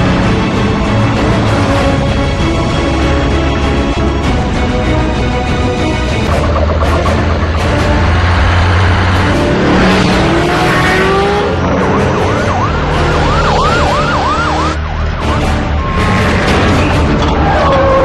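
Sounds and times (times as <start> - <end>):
police siren wailing: 6.3 - 9.4, 10.5 - 16.5, 17.2 - 18.0
cars speeding past: 7.0 - 14.8.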